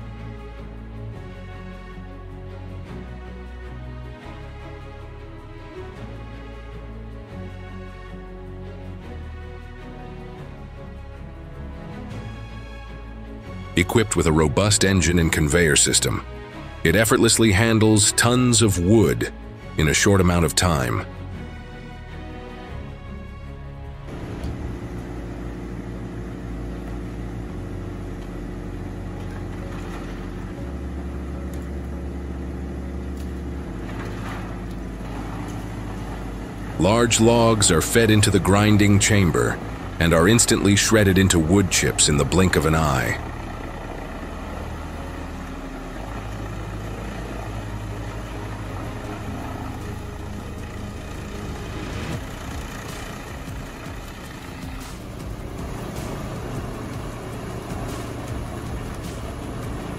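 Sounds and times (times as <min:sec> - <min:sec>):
diesel engine drone: 0:00.0 - 0:59.9
wood being shredded: 0:24.1 - 0:59.9
wood grinding: 0:24.1 - 0:59.9
wood cracking: 0:33.1 - 0:37.6.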